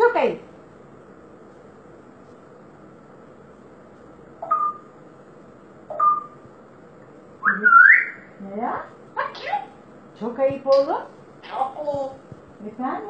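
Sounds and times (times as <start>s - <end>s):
parrot whistling: 4.4s - 4.9s, 5.9s - 6.4s, 7.4s - 8.3s.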